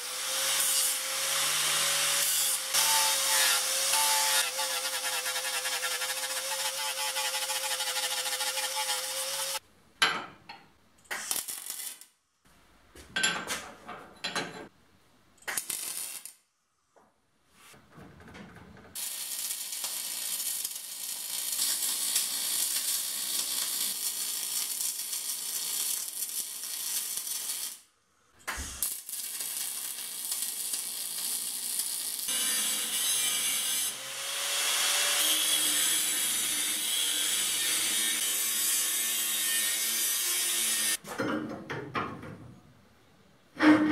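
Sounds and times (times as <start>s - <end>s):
angle grinder cutting steel: 0.0s - 9.6s, 28.6s - 41.0s
welder crackling hiss: 11.1s - 12.1s, 15.5s - 16.4s, 19.0s - 27.9s, 28.5s - 32.6s.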